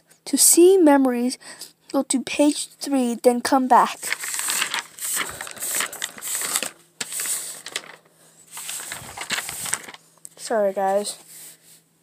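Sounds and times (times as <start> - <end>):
paper pages rustling: 3.8 - 11.6.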